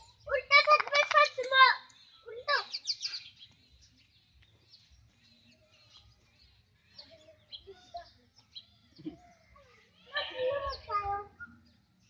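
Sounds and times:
faint birds chirping: 0:00.0 - 0:12.0
high-pitched cry: 0:09.5 - 0:10.9.

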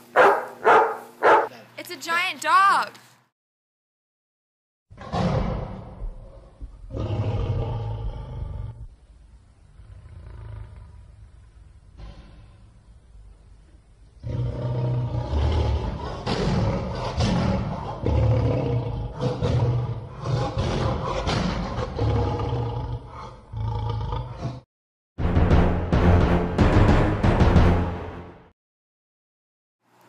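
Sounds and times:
deep rough animal roaring: 0:04.9 - 0:09.0, 0:09.7 - 0:11.2, 0:11.9 - 0:12.8, 0:14.2 - 0:24.6.

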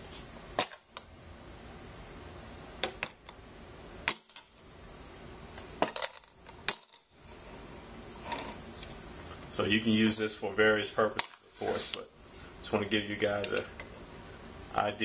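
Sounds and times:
quiet handling: 0:07.3 - 0:14.0.

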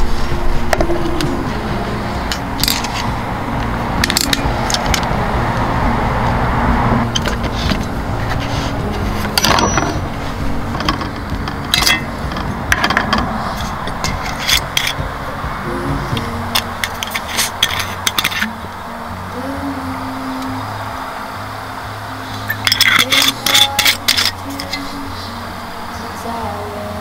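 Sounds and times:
low background noise: 0:00.0 - 0:27.0
small hard objects clinking: 0:22.4 - 0:24.9.

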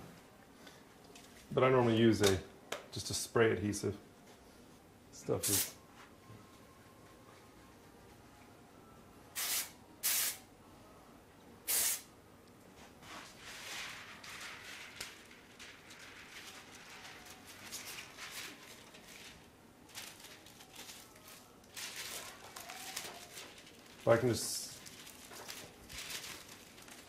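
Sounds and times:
aerosol can spraying: 0:09.4 - 0:10.4, 0:11.7 - 0:12.1
plastic film crinkling: 0:13.3 - 0:27.0.

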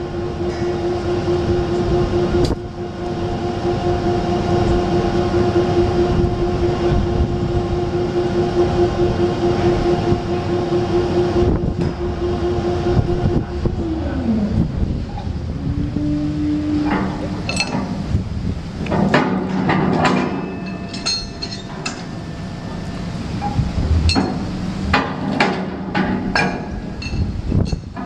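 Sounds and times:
crane hoist whine: 0:00.0 - 0:27.7
low rumble: 0:21.8 - 0:27.5.

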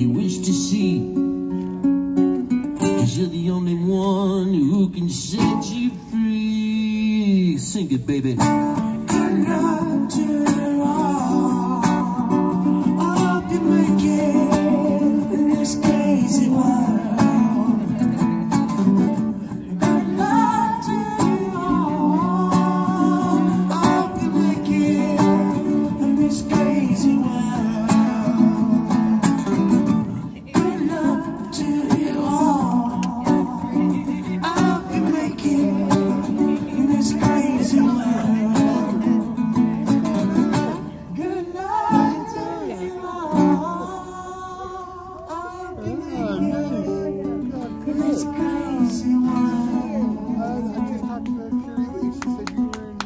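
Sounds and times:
acoustic guitar strumming: 0:00.0 - 0:44.6, 0:45.6 - 0:52.9
person singing: 0:19.6 - 0:39.8, 0:40.6 - 0:50.9.

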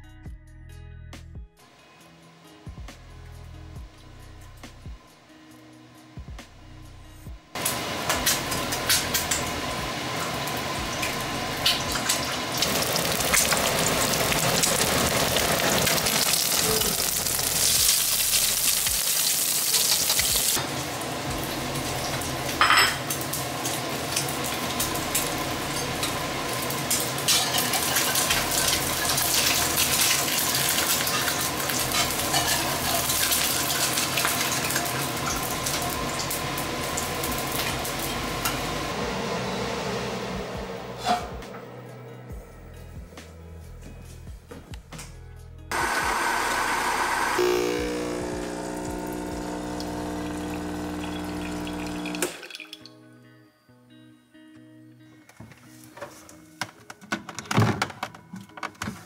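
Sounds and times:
eggs sizzling in a pan: 0:07.6 - 0:38.1, 0:45.7 - 0:52.7.

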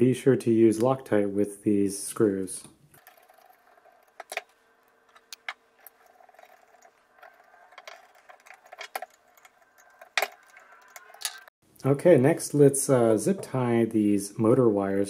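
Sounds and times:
screwdriver and screws clicking: 0:03.0 - 0:11.5.

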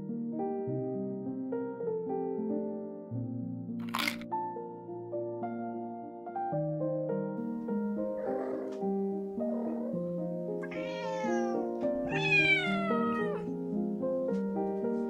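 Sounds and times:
background music: 0:07.2 - 0:15.0
cat meowing: 0:08.2 - 0:08.8, 0:09.5 - 0:13.5.

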